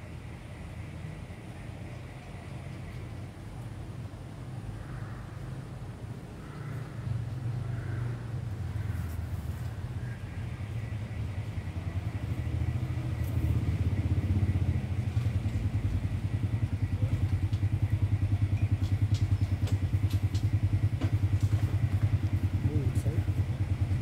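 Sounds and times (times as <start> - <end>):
small engine throbbing: 6.4 - 24.0.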